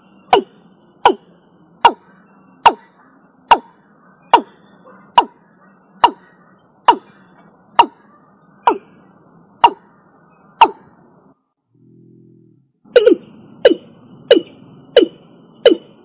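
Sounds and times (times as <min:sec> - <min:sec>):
bird calling sharp falling notes: 0:00.0 - 0:09.0, 0:12.9 - 0:16.0.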